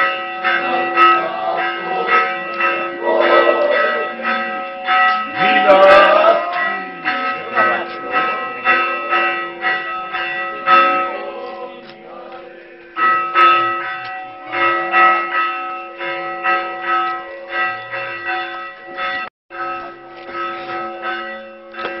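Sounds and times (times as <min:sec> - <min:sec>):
church bells ringing: 0:00.0 - 0:22.0.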